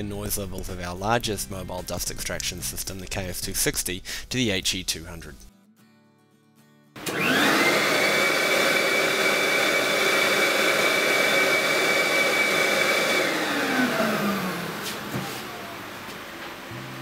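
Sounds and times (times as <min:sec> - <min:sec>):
dust extractor motor whine: 0:07.0 - 0:17.0.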